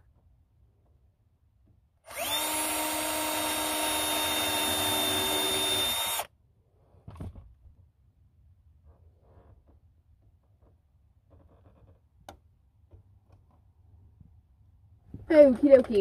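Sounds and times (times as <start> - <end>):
drill drilling into wood: 2.1 - 6.3.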